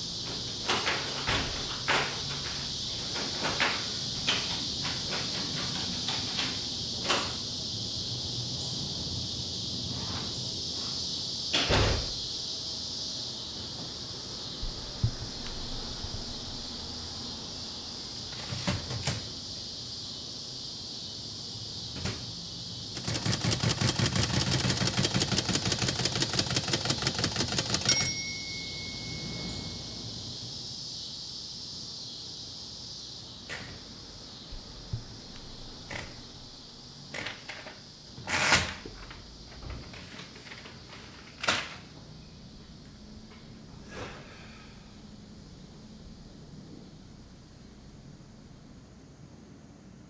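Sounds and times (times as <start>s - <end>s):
steady high hiss: 0.0s - 50.0s
typewriter key strikes: 23.0s - 28.3s.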